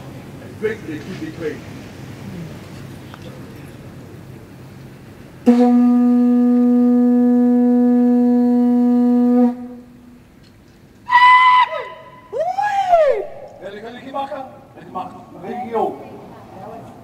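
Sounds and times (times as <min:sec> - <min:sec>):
conch shell trumpet blast: 0:05.4 - 0:10.2, 0:11.1 - 0:12.3
swooping higher conch notes: 0:05.5 - 0:10.3, 0:11.0 - 0:13.6.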